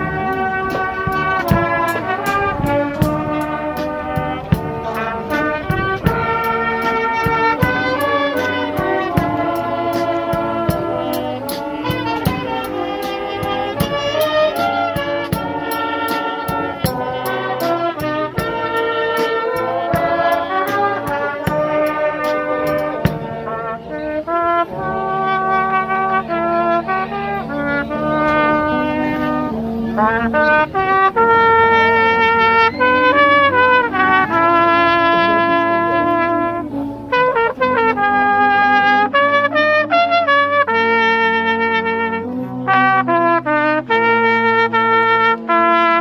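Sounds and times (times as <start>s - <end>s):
brass band playing: 0.0s - 46.0s
ticking cymbal beat: 3.0s - 23.6s.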